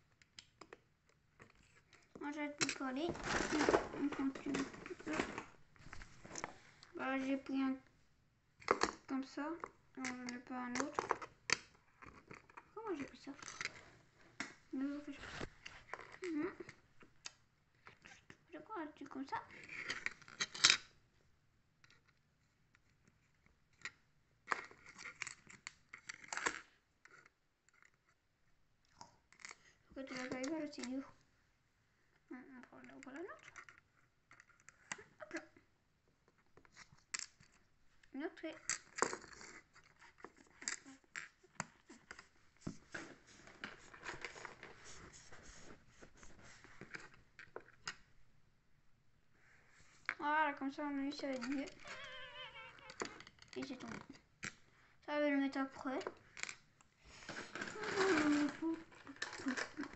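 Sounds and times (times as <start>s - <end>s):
plastic bricks clicking and rattling: 57.3s - 59.9s.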